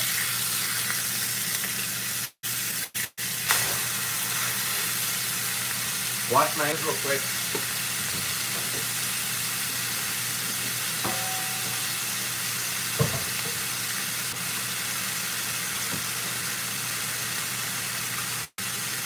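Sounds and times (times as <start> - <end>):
steak sizzling in a skillet: 0.0 - 19.0
knock: 13.0 - 13.3.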